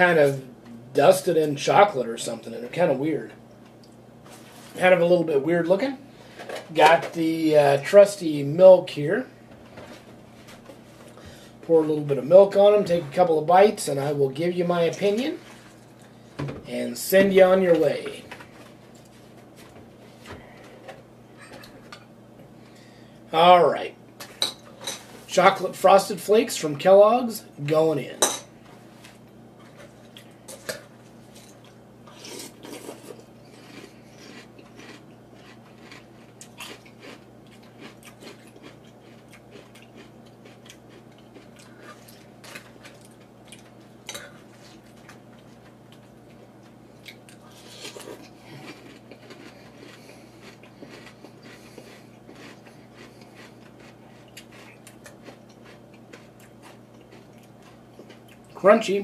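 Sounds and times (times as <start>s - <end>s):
person chewing crunchy cereal: 29.6s - 58.6s.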